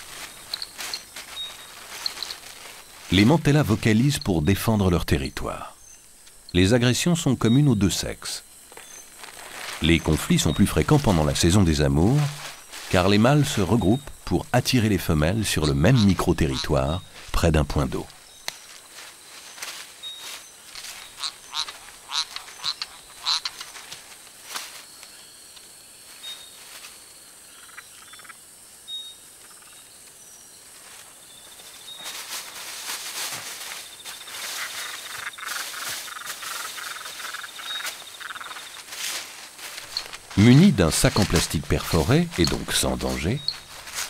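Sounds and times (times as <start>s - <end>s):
high insect trill: 0.0s - 44.0s
frogs clicking chirps: 0.3s - 9.2s, 9.8s - 18.7s, 19.6s - 23.8s, 27.4s - 30.3s, 34.0s - 39.0s, 39.7s - 44.0s.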